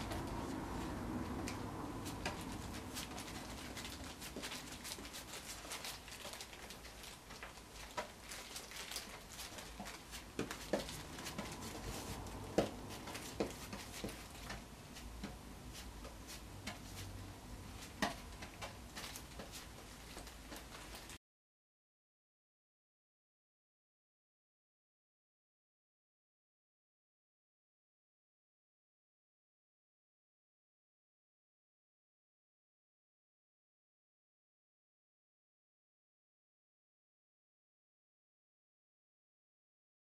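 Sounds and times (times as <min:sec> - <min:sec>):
sharp brush taps: 0:00.0 - 0:06.7, 0:07.4 - 0:21.1
brush bristles clicking on wet wood: 0:00.1 - 0:14.6.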